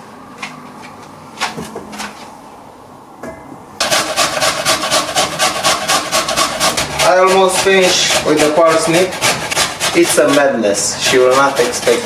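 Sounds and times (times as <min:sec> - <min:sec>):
vegetable grated on a hand grater: 0:03.8 - 0:12.0.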